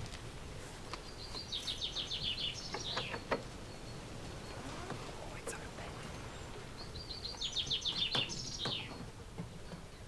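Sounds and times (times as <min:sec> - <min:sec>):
outdoor background noise: 0:00.0 - 0:10.0
songbird singing: 0:00.4 - 0:10.0.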